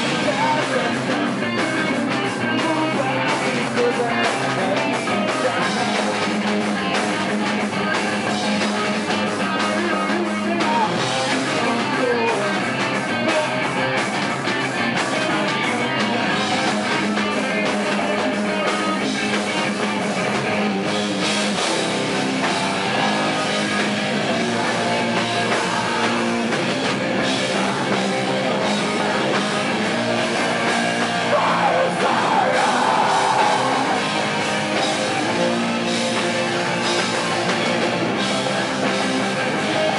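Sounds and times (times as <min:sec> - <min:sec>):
live metal band playing: 0:00.0 - 0:39.9
person singing into microphone: 0:27.2 - 0:34.2.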